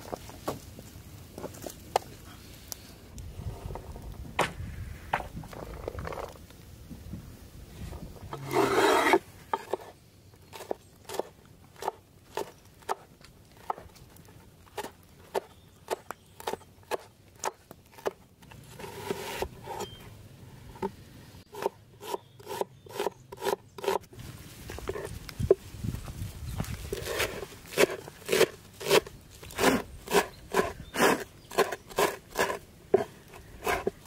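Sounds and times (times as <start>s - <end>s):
knife rasping scrape: 8.4s - 9.9s, 18.6s - 20.0s, 26.9s - 34.0s.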